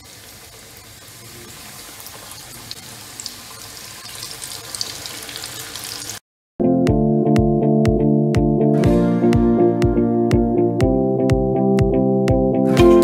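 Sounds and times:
fish deep-frying in hot oil: 0.0 - 6.2.

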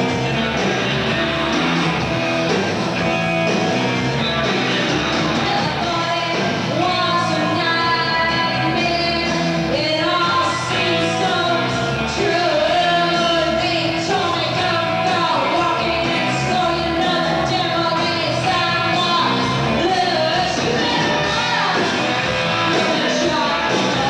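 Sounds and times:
rock band playing live: 0.0 - 24.0
woman singing into a microphone: 5.4 - 21.9, 22.7 - 24.0.

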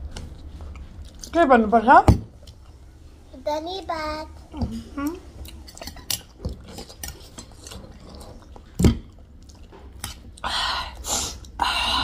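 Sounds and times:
chewing: 4.8 - 10.5.

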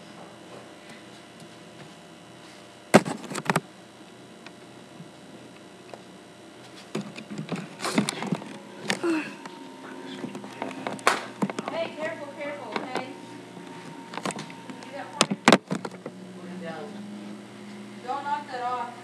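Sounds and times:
faint hum: 0.0 - 19.0
webcam handling knocks and rustling: 3.0 - 3.6, 6.9 - 9.0, 10.3 - 11.9, 14.1 - 14.6, 15.2 - 16.1.

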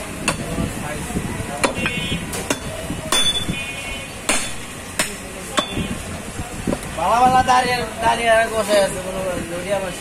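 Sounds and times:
cleaver chopping on wooden block: 1.6 - 3.5, 4.3 - 5.8.

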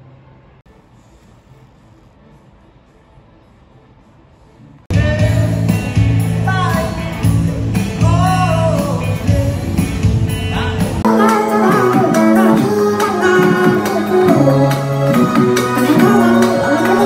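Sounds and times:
person singing: 4.9 - 9.8, 10.5 - 17.0
deep bass: 4.9 - 17.0
guitar: 4.9 - 17.0.

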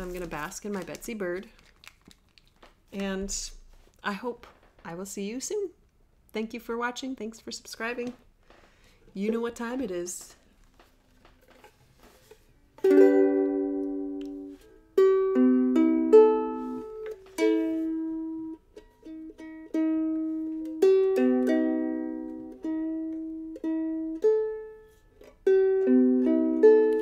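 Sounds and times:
ukulele strumming chords: 12.8 - 27.0.

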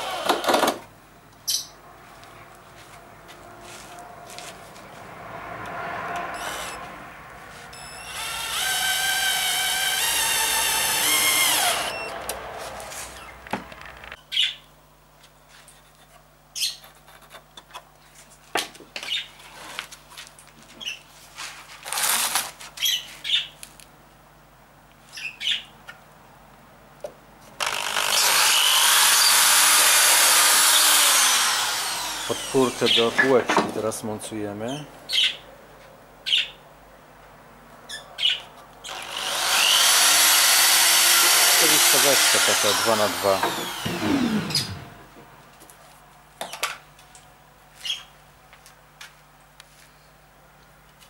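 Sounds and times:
cordless drill whining: 0.0 - 0.8, 6.3 - 6.8, 7.7 - 12.3, 27.6 - 33.4, 38.8 - 45.0
drill boring into wood: 0.0 - 0.8, 6.4 - 6.8, 7.8 - 12.1, 27.6 - 33.5, 38.9 - 45.0.

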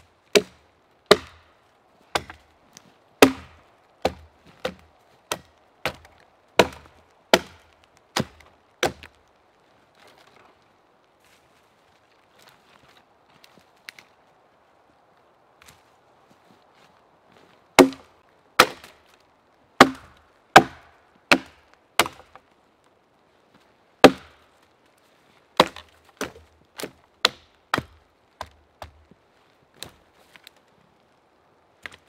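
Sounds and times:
axe chopping wood: 0.3 - 1.5, 2.1 - 2.5, 3.2 - 9.2, 17.8 - 19.0, 19.8 - 22.4, 24.0 - 24.4, 25.6 - 29.0.

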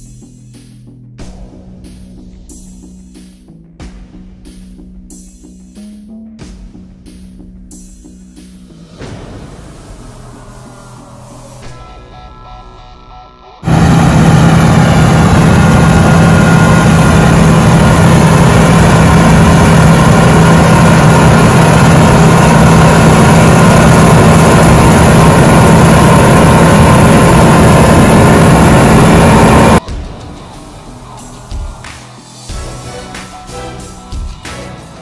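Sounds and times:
diesel farm machinery running: 13.6 - 29.8.

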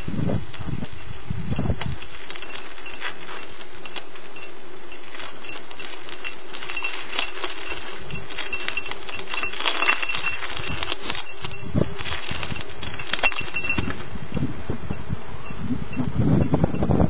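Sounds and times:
bike clicks and rattles: 0.0 - 14.4
bike tyres on crusted snow: 0.0 - 17.0.

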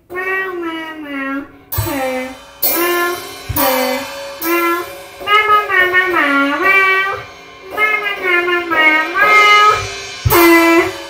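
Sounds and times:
child singing into microphone: 0.0 - 11.0
drum kit playing: 1.6 - 11.0
cymbal crashes: 1.7 - 7.9, 9.0 - 11.0.

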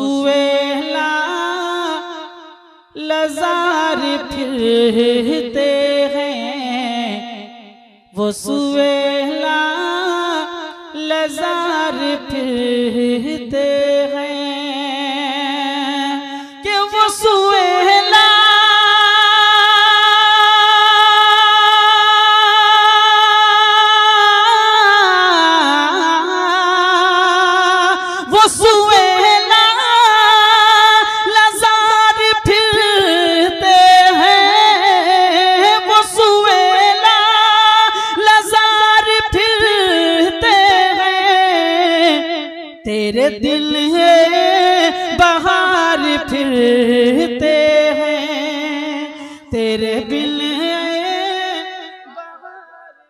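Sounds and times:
man singing unaccompanied: 49.6 - 53.0.

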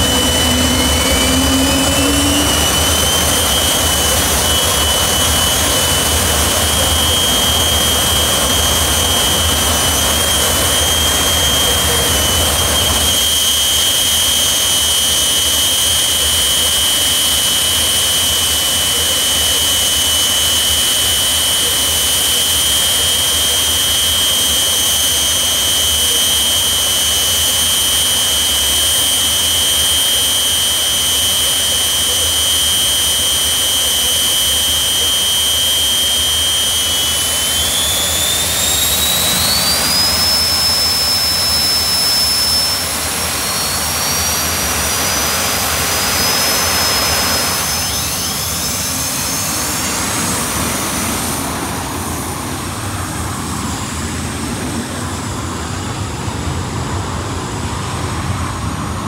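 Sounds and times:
jet turbine engine whining: 0.0 - 59.0.

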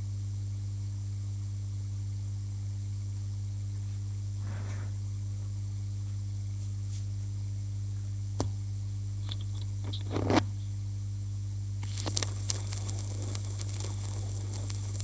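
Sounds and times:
low hum: 0.0 - 15.0
record clicks and crackle: 9.2 - 10.8, 11.8 - 15.0.

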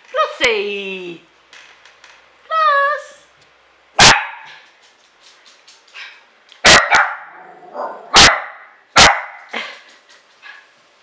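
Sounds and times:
dog barking sharply: 4.0 - 4.6, 6.6 - 9.5.

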